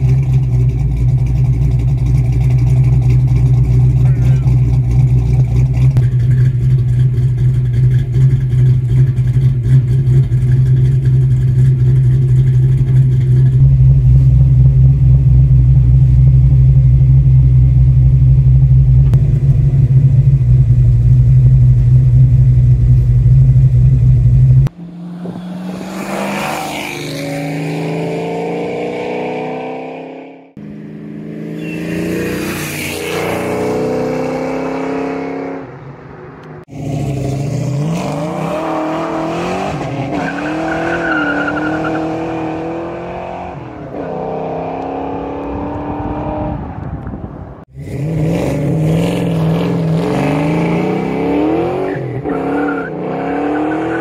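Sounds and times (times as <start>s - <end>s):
car driving past: 24.7s - 36.7s.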